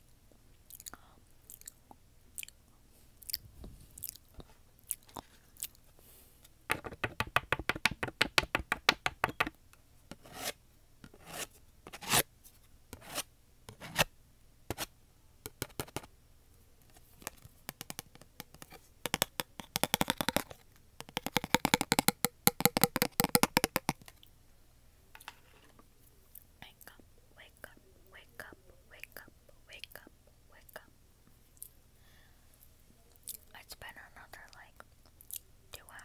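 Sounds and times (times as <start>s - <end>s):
crackly clicking and scratching: 16.8s - 24.3s.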